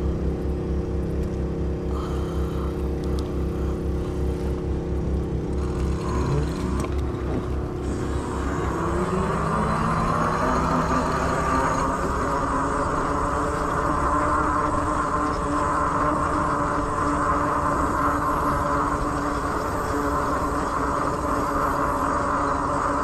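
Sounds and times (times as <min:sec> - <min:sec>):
road noise: 0:00.0 - 0:15.5
electric motor whining: 0:00.0 - 0:23.0.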